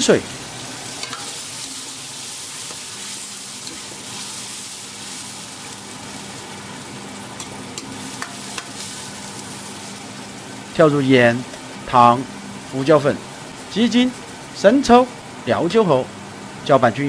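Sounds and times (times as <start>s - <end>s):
sauce sizzling in a wok: 0.0s - 15.5s
metal ladle clicking on wok: 1.0s - 1.3s.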